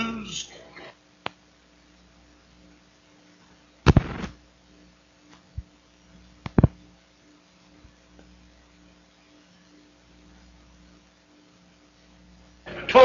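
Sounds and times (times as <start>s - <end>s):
faint steady hum: 0.0s - 13.0s
sharp clicks and pops: 3.8s - 4.4s, 6.4s - 6.8s.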